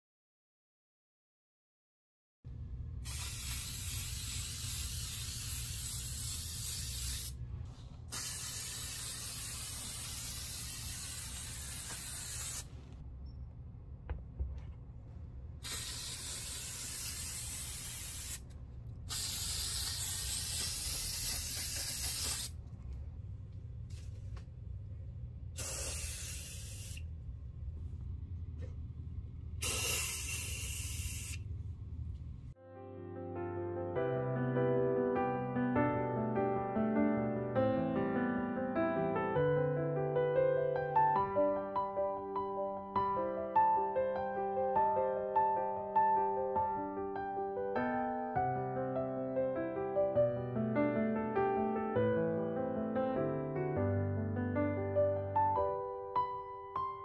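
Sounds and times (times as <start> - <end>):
low steady hum: 2.5 - 3.1, 7.4 - 8.2, 12.7 - 15.7, 18.4 - 19.1, 22.6 - 25.6, 26.5 - 32.6
aerosol spray can hissing: 3.0 - 7.4, 8.1 - 12.7, 15.6 - 18.5, 19.1 - 22.6, 25.6 - 27.0, 29.6 - 31.4.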